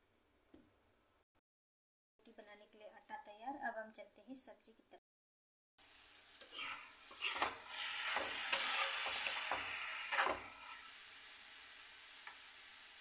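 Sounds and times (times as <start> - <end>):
vegetables sizzling: 5.8 - 13.0
ladle scraping metal pan: 6.4 - 10.9.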